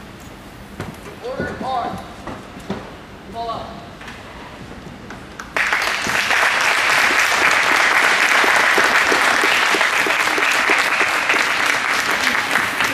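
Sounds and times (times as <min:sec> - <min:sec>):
audience applauding: 0:05.4 - 0:12.9.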